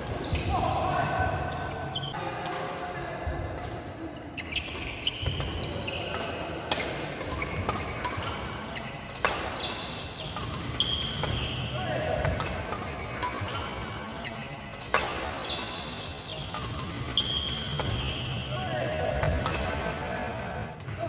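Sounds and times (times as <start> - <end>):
shoes squeaking on wooden court: 0.0 - 0.8, 1.4 - 2.2, 4.4 - 19.6
voices: 0.0 - 21.0
rackets hitting shuttlecock: 4.4 - 20.0.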